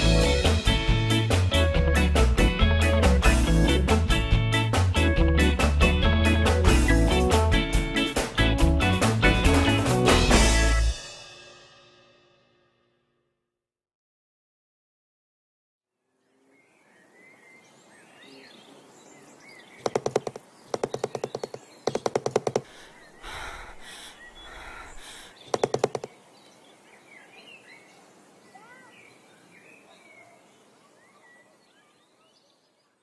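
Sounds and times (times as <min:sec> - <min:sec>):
birds chirping: 0:16.2 - 0:33.0
fast rattling sound effect: 0:19.8 - 0:22.7, 0:25.5 - 0:26.1.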